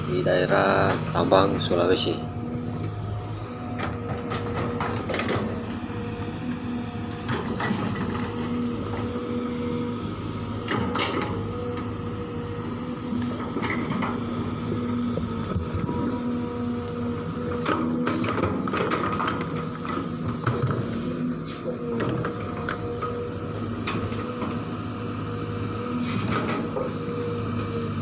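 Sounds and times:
excavator engine running: 0:00.0 - 0:28.0.

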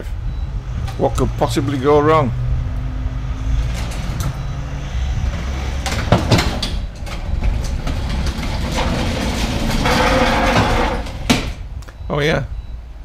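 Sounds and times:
wheel dollies rolling on concrete: 0:05.2 - 0:11.6.

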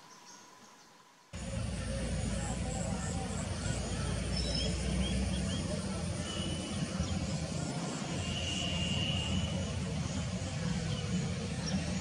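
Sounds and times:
faint thin high whistle: 0:08.2 - 0:09.7.

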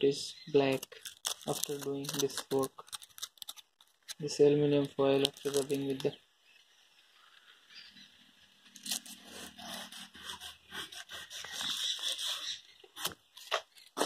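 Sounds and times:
foil scraping against chrome: 0:00.7 - 0:04.3, 0:08.8 - 0:14.0.

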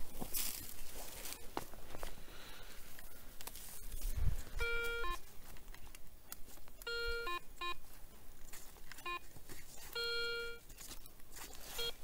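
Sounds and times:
metal detector beeps: 0:04.6 - 0:05.2, 0:06.8 - 0:07.8, 0:09.0 - 0:09.3, 0:09.9 - 0:10.7, 0:11.7 - 0:12.0.

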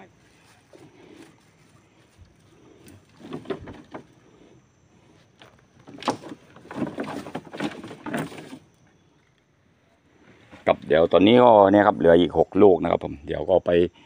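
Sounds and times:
knocks and clattering in a boat: 0:03.2 - 0:04.1, 0:05.9 - 0:08.6.

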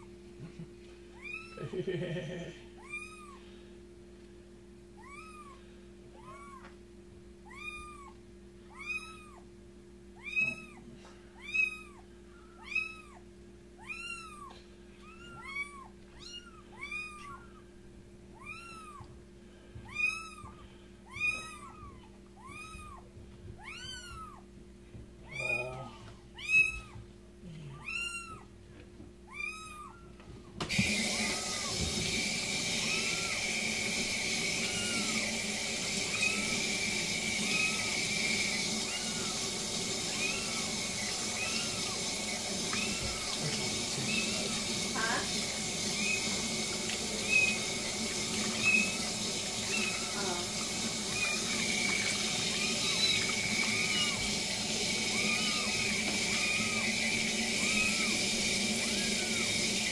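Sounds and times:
kitten mewing: 0:01.2 - 0:01.7, 0:02.8 - 0:03.4, 0:05.0 - 0:06.7, 0:07.5 - 0:09.4, 0:10.2 - 0:10.8, 0:11.4 - 0:13.2, 0:13.8 - 0:17.6, 0:18.4 - 0:19.1, 0:19.9 - 0:24.4, 0:25.3 - 0:28.5
kitchen tap running: 0:30.6 - 0:59.9.

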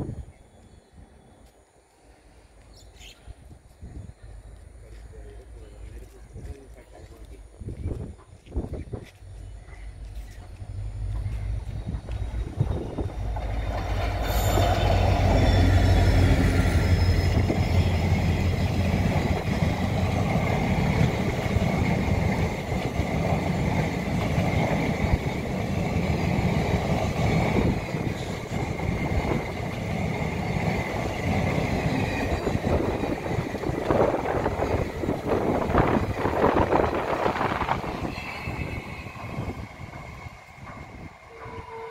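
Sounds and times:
diesel locomotive engines: 0:00.0 - 0:41.9
train wheels rumbling: 0:03.3 - 0:41.9
high wheel squeal: 0:13.9 - 0:18.7, 0:37.9 - 0:39.6, 0:41.2 - 0:41.9.

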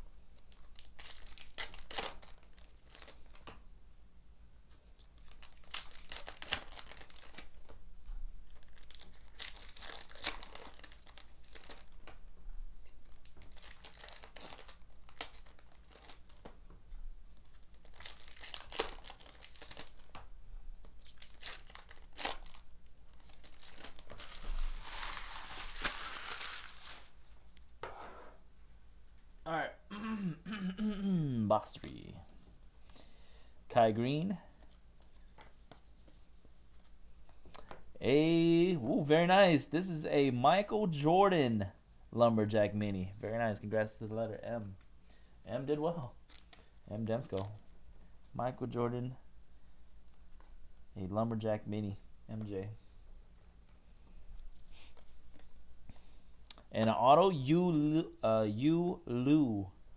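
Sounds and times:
foil wrappers crinkling and tearing: 0:00.4 - 0:03.5, 0:05.1 - 0:07.8, 0:08.4 - 0:12.3, 0:13.0 - 0:16.5, 0:17.3 - 0:20.2, 0:20.9 - 0:27.2, 0:46.2 - 0:47.6.

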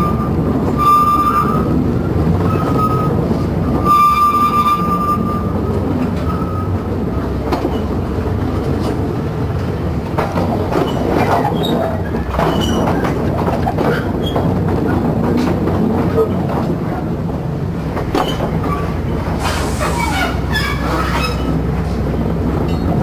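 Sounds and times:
train rumbling: 0:00.0 - 0:23.0
wheels clicking over rail joints: 0:00.6 - 0:23.0
wheels squealing: 0:10.7 - 0:14.6, 0:18.1 - 0:21.6.

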